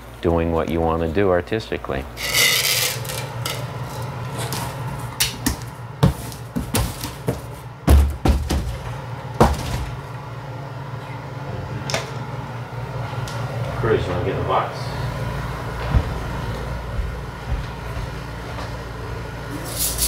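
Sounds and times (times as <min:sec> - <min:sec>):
steady low hum: 0:00.0 - 0:20.0
box knocks and thumps: 0:06.0 - 0:08.8.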